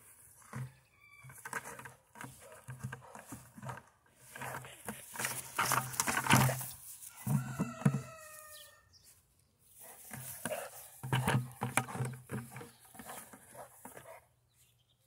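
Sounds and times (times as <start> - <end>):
distant rooster crowing: 0.5 - 1.5, 7.1 - 8.9.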